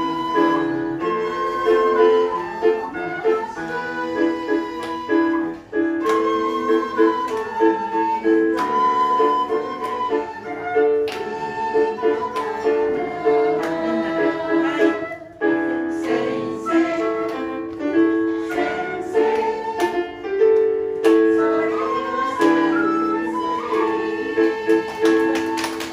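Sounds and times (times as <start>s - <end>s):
end-blown flute melody: 0.0s - 15.6s, 21.1s - 25.9s
keyboard piano chords: 0.0s - 25.9s.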